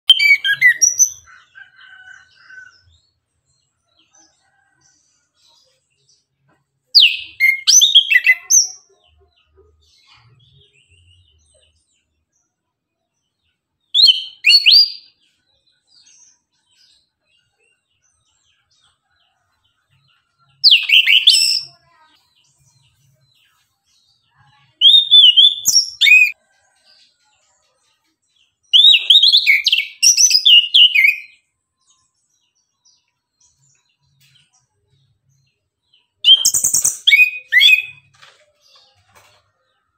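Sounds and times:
bird chirping and warbling: 0:00.0 - 0:12.4, 0:13.3 - 0:39.9.

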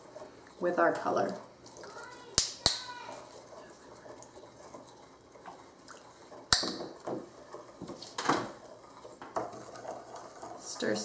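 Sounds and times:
sticks scraping ceramic bowls: 0:02.4 - 0:11.0.

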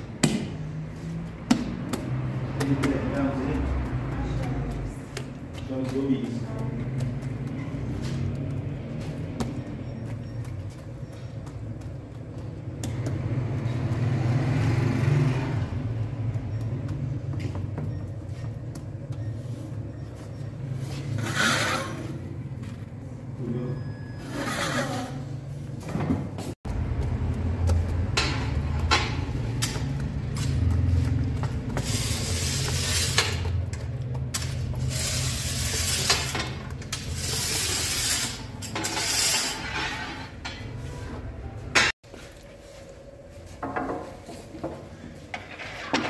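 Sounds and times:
dough being patted: 0:00.1 - 0:20.7, 0:26.6 - 0:35.8
iron peel scraping oven: 0:20.9 - 0:22.2, 0:23.9 - 0:25.5, 0:34.4 - 0:40.6.

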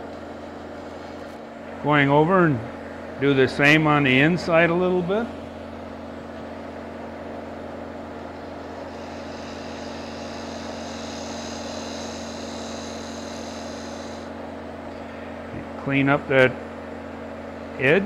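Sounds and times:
lathe motor hum: 0:00.0 - 0:18.0
tool cutting wood hiss: 0:08.6 - 0:14.4.

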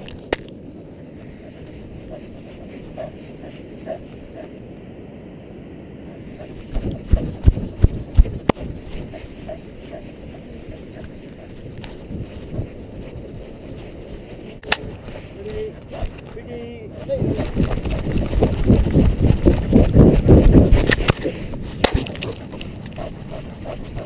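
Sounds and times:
wind: 0:00.0 - 0:24.0
camera rubbing: 0:01.3 - 0:04.5, 0:06.4 - 0:24.0.

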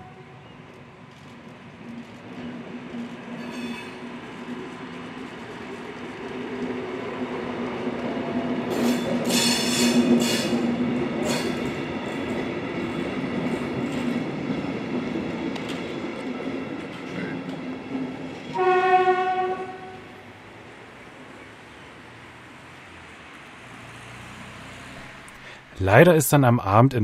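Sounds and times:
wheels clacking over rail joints: 0:00.7 - 0:19.0.

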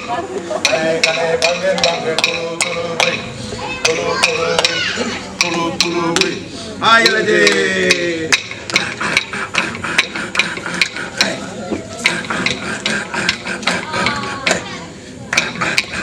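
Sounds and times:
men chanting: 0:00.1 - 0:16.0
clapsticks clicking: 0:07.0 - 0:11.4, 0:12.0 - 0:14.7, 0:15.3 - 0:16.0.

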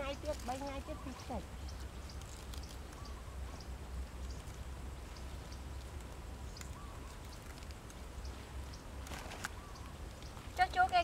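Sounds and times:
leaves rustling when handled: 0:00.0 - 0:11.0.

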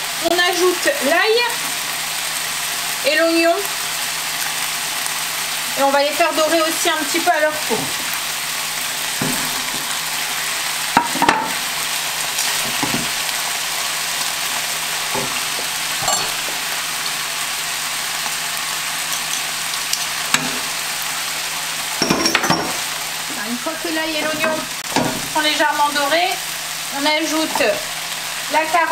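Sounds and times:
food sizzling in oil: 0:00.0 - 0:28.9
wooden spoon knocking on pan: 0:09.2 - 0:09.9, 0:11.0 - 0:11.6, 0:12.7 - 0:13.2, 0:15.1 - 0:16.7, 0:22.0 - 0:22.8, 0:24.2 - 0:25.4.

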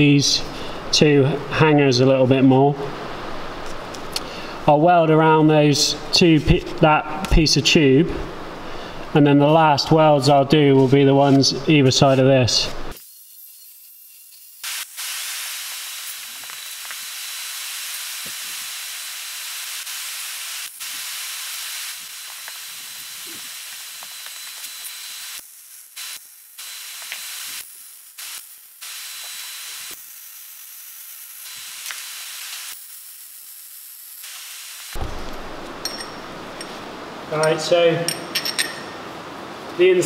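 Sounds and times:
welding arc hissing and crackling: 0:09.5 - 0:37.0.

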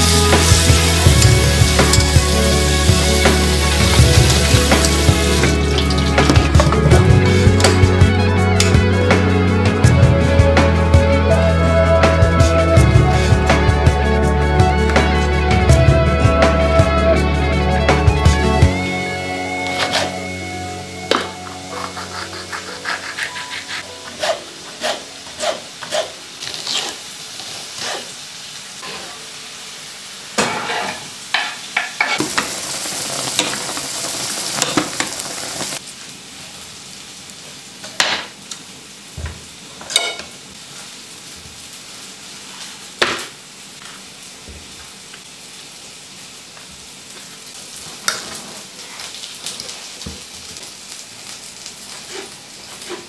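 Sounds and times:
steady hiss: 0:31.1 - 0:53.0.

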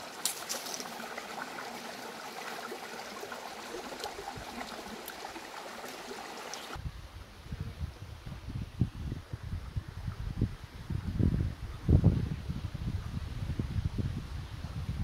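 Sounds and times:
stream flowing over stones: 0:00.0 - 0:06.8.

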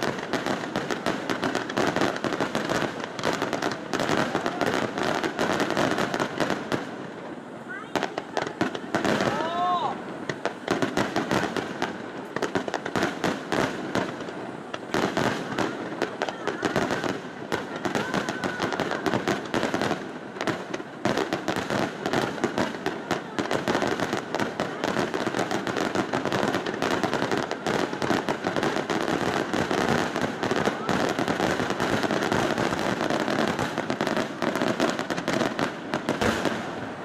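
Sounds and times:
firework bangs and crackling: 0:00.0 - 0:37.0.

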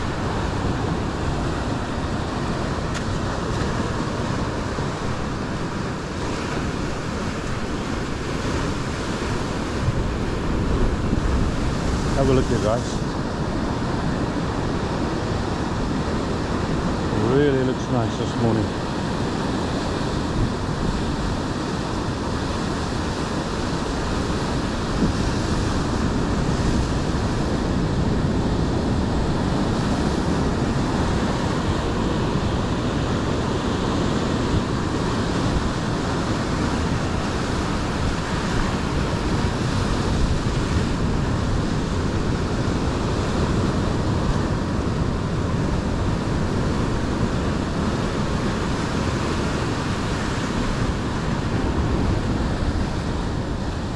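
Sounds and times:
ocean waves breaking on rocks: 0:00.0 - 0:53.9.

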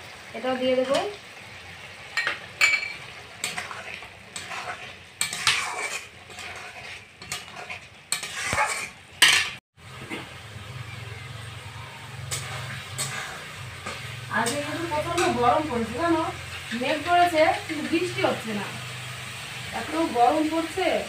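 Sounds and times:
food sizzling: 0:00.0 - 0:21.0
spatula scraping metal pan: 0:02.6 - 0:09.6, 0:12.1 - 0:18.2.

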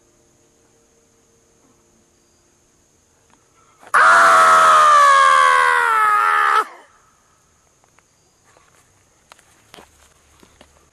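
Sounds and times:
loud human scream: 0:03.9 - 0:07.0.

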